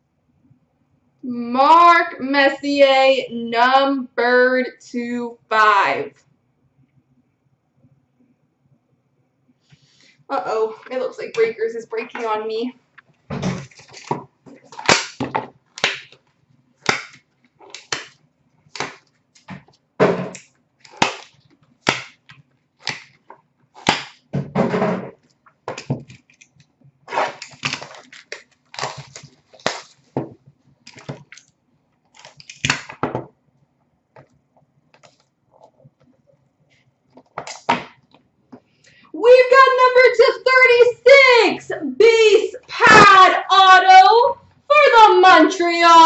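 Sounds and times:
plastic shrink wrap crinkling: 13.0s - 19.8s, 20.4s - 24.3s, 25.2s - 33.0s, 34.2s - 36.3s.

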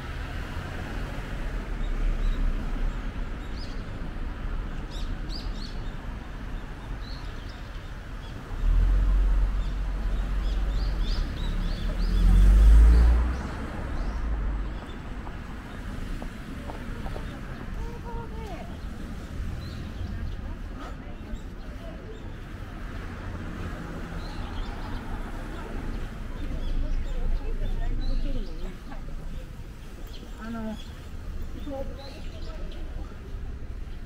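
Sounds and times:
street background noise: 0.0s - 34.0s
small birds chirping: 24.1s - 34.0s.

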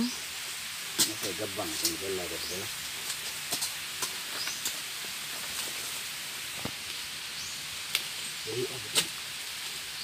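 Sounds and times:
steady high hiss: 0.0s - 10.0s.

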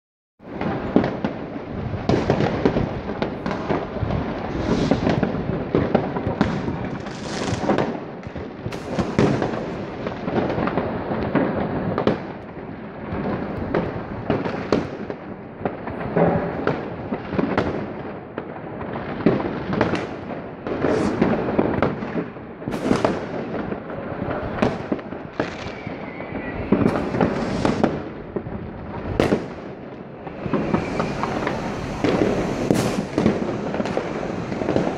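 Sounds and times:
fireworks crackling and banging: 0.4s - 34.9s
falling firework whistle: 4.4s - 7.8s, 20.6s - 21.9s, 24.3s - 28.1s, 29.0s - 34.9s.

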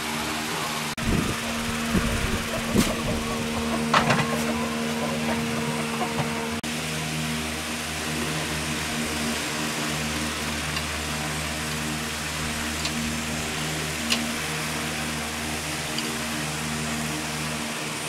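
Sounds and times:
motor running steadily: 0.0s - 18.0s.

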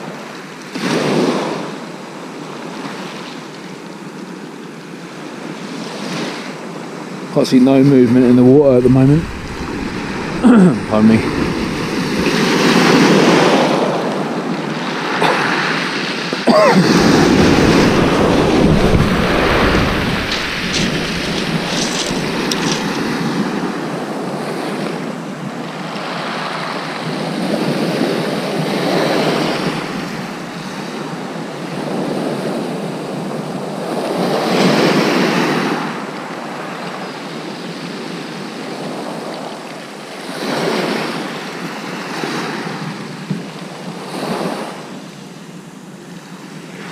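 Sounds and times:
waves breaking on shingle: 7.8s - 13.4s, 16.5s - 24.0s, 28.0s - 31.0s
deep rumble: 8.0s - 12.7s, 17.1s - 23.1s.

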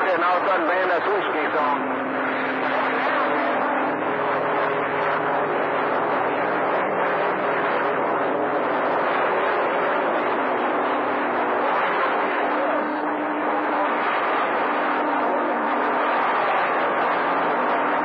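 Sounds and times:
radio static: 0.0s - 1.8s
faint steady tones: 0.0s - 18.0s.

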